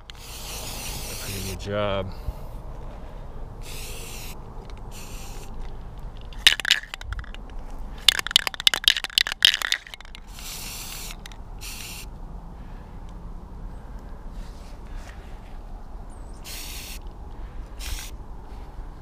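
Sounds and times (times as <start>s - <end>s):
spray can ball rattling: 0.0s - 1.2s, 3.6s - 12.1s, 16.5s - 17.0s, 17.8s - 18.1s
spray can hissing: 0.1s - 1.5s, 3.6s - 5.6s, 9.6s - 12.1s, 16.4s - 17.0s, 17.8s - 18.1s.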